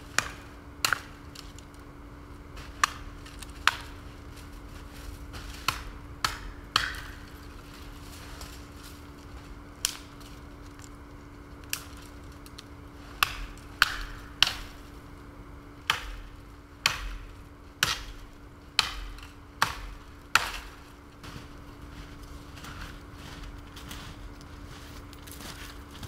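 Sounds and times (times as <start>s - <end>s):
firewood chopping: 0.1s - 1.7s, 2.5s - 15.2s, 15.8s - 24.2s.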